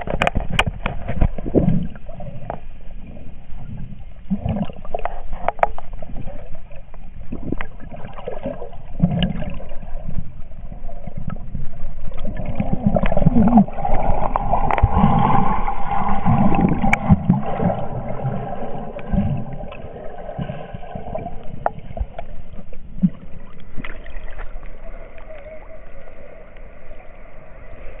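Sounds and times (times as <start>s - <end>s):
muffled water sloshing underwater: 0.0s - 28.0s.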